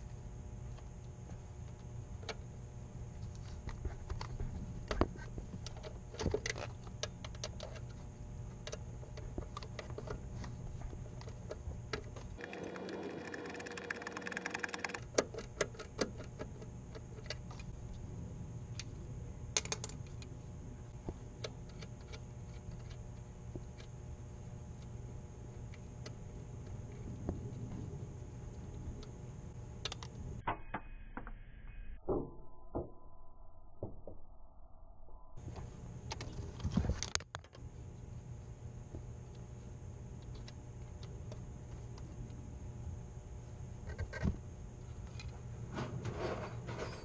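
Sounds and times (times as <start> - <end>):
steady low hum: 0.0 - 47.0
ratchet clicking: 12.4 - 15.0.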